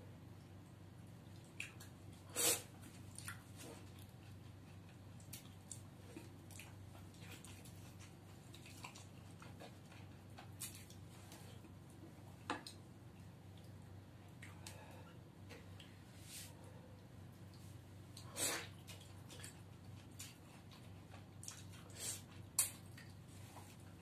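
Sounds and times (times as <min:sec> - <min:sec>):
steady low hum: 0:00.0 - 0:24.0
chewing: 0:02.9 - 0:11.8, 0:17.5 - 0:24.0.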